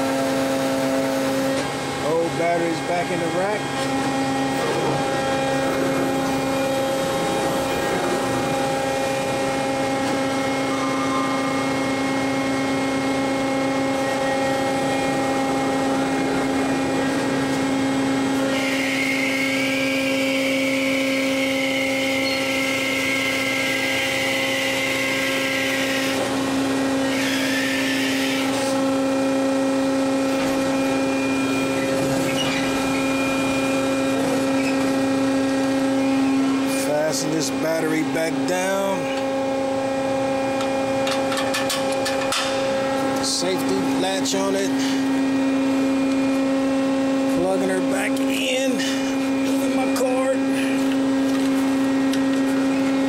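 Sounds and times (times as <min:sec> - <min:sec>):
electric motor hum: 0:00.0 - 0:53.0.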